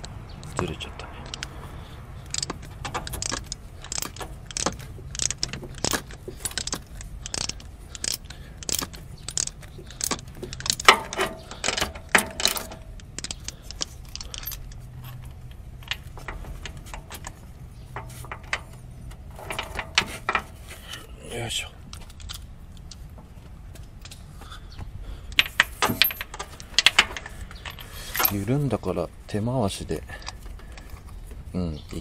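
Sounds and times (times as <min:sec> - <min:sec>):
socket ratchet clicking: 0:02.2 - 0:17.4
metal socket clinks: 0:02.3 - 0:17.3, 0:25.3 - 0:28.4.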